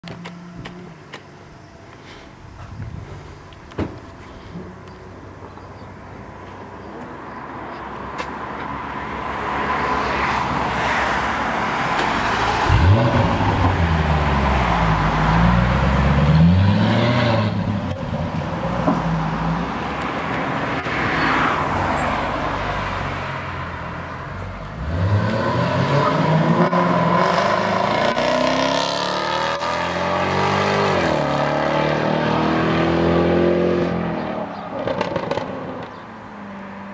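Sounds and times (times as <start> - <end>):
car engine accelerating hard: 12.2 - 18.0.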